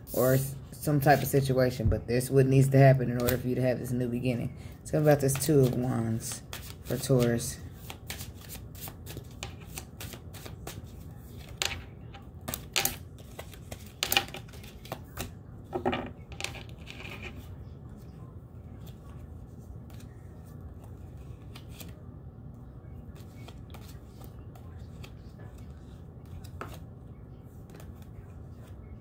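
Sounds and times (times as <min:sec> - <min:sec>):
steady low hum: 0:00.0 - 0:29.0
cards being shuffled: 0:05.1 - 0:17.5, 0:18.7 - 0:22.0, 0:23.1 - 0:28.8.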